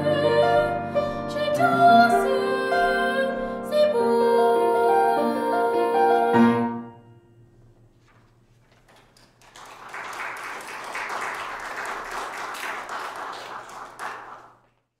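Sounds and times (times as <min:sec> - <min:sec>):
piano chord: 0:00.0 - 0:08.0
hands clapping: 0:08.1 - 0:15.0.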